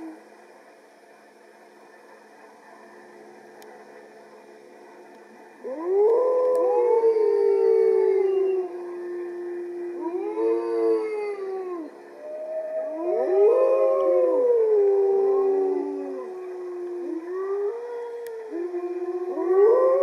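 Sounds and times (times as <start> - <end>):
wolf pack howling: 5.6 - 20.0.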